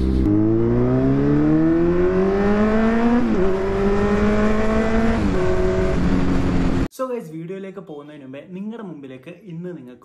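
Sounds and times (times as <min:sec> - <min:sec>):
motorcycle engine accelerating: 0:00.0 - 0:06.9.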